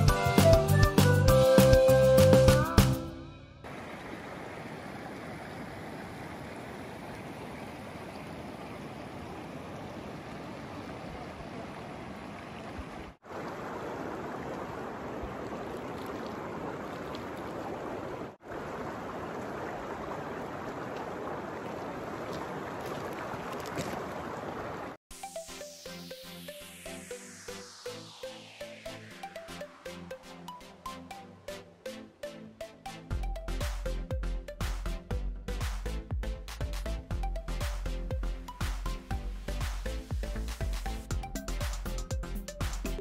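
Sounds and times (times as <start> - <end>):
river water rushing over stones: 3.7 - 25.0.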